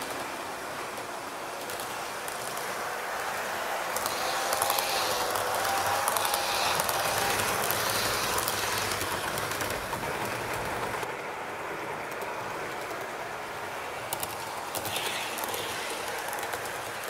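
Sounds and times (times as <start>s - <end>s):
wheels clicking over rail joints: 0.0s - 11.2s, 11.8s - 17.0s
model train rolling: 0.0s - 17.0s.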